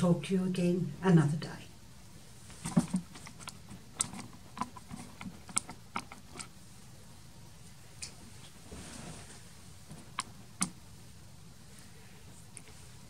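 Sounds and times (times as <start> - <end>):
handling clicks and taps: 2.6 - 6.5.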